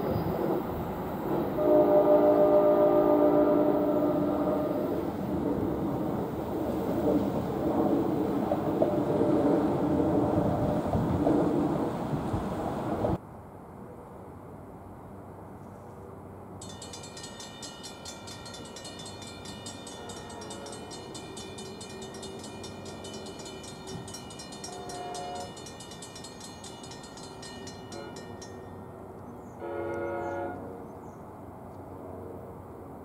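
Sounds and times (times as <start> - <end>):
train horn blasts: 1.5 - 5.1, 19.8 - 21.2, 24.1 - 25.8, 27.8 - 28.5, 29.5 - 30.8
crossing bells ringing: 16.6 - 30.6.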